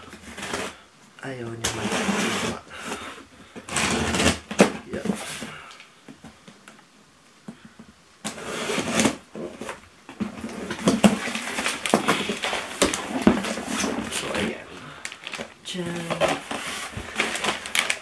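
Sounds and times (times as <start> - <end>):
plastic wrapping crinkling: 8.3 - 18.0.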